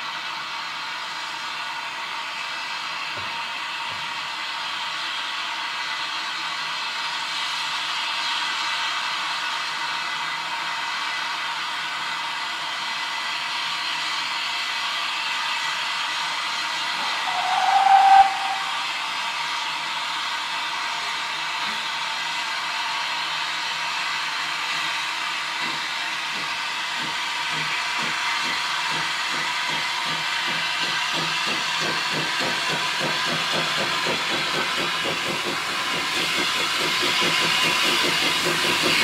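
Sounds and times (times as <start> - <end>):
steam whistle: 16.9 - 19.8
steam hissing: 17.0 - 19.5, 29.7 - 39.0
steam engine exhaust chuffs: 26.4 - 39.0.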